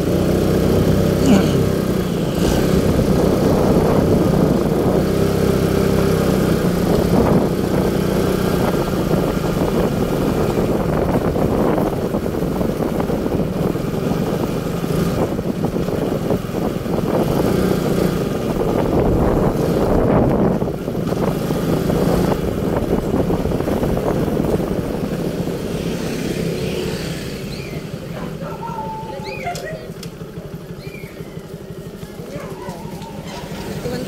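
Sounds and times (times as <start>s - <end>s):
road or wind rumble: 0.0s - 34.0s
vehicle engine running: 0.0s - 34.0s.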